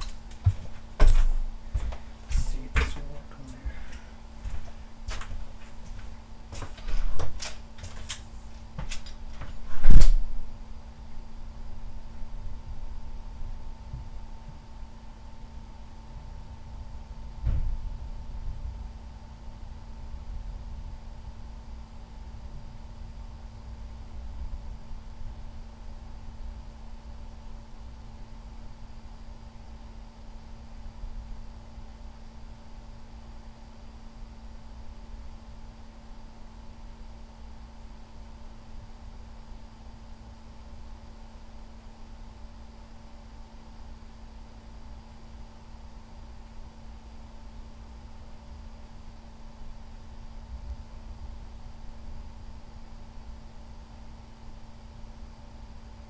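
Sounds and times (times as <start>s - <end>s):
steady low hum: 0.0s - 56.0s
heavy thump: 17.4s - 17.8s.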